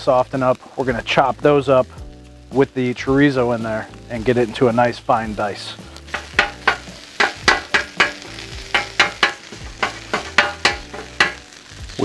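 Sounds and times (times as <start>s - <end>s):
food sizzling: 0.0s - 12.0s
metal chopper striking griddle: 6.1s - 11.6s.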